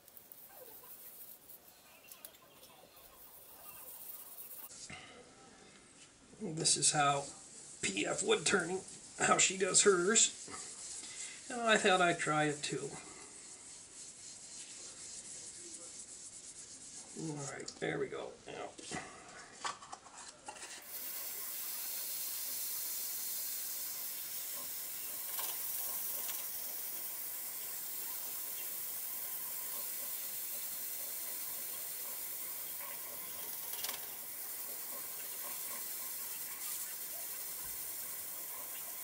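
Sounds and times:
abrasive paste hissing on bowl: 0:00.0 - 0:04.9, 0:06.6 - 0:17.5, 0:20.8 - 0:39.0
wood lathe spinning: 0:20.8 - 0:39.0.

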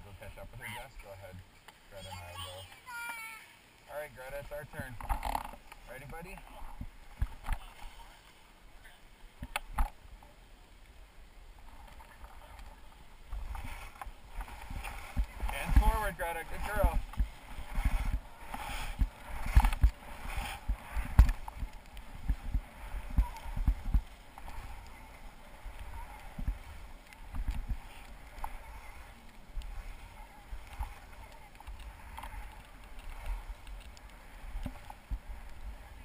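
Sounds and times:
skis sliding over snow: 0:00.0 - 0:09.4, 0:11.4 - 0:36.0
wind buffeting microphone: 0:12.4 - 0:36.0.

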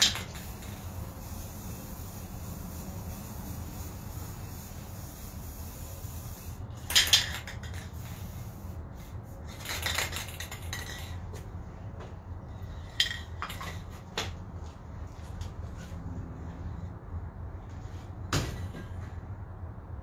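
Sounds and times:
spray-paint can hissing: 0:00.0 - 0:11.1.

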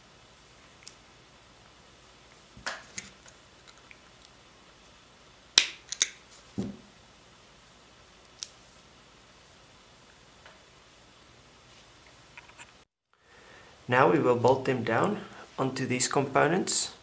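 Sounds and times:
metal nut and plastic part clicking: 0:05.9 - 0:06.2.

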